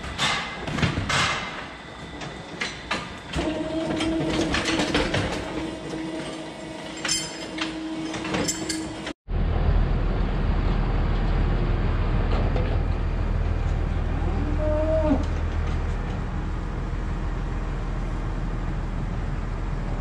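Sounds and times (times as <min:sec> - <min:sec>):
metal clanks and clicks: 0:02.2 - 0:09.2
steady low rumble: 0:09.3 - 0:20.0.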